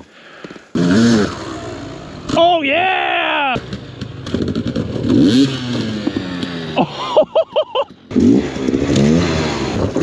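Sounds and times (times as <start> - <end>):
dirt bike engine revving: 0.7 - 2.8, 3.4 - 10.0.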